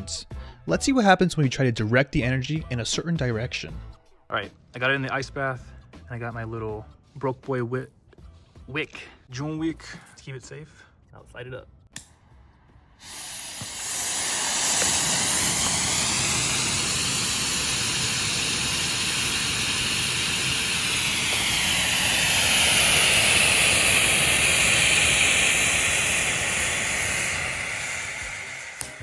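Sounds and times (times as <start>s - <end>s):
rocket exhaust hissing: 12.9s - 29.0s.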